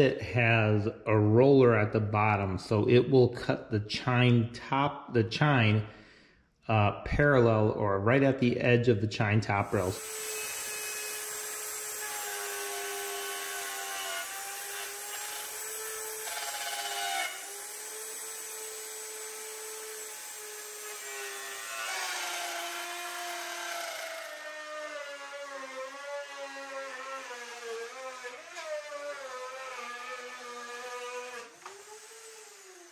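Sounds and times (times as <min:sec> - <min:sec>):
router bit cutting wood: 0:09.6 - 0:32.9
router motor whine: 0:10.0 - 0:32.9.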